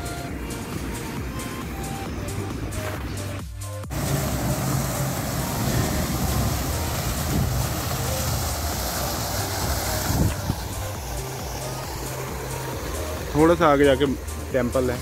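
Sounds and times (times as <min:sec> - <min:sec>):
strong wind buffeting microphone: 0:03.9 - 0:13.8.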